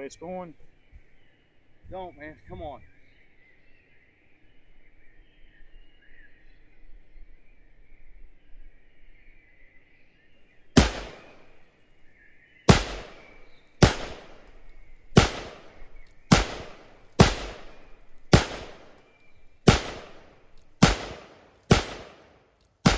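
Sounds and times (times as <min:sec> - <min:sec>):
rifle gunshots: 0:10.8 - 0:11.5, 0:12.7 - 0:19.0, 0:19.6 - 0:22.9.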